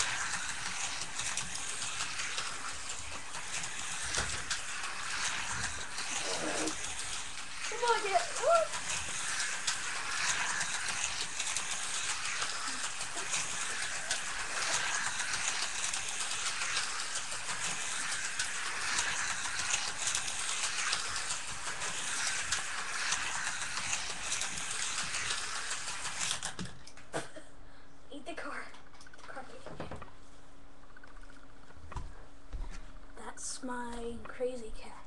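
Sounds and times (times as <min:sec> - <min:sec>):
slot cars whirring: 0:00.0 - 0:26.8.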